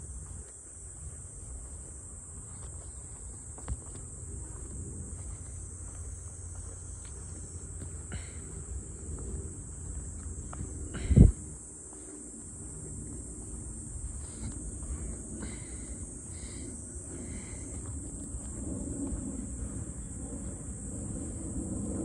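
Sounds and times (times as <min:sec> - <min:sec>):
high-pitched insect chorus: 0:00.0 - 0:22.0
low rumble: 0:12.5 - 0:22.0.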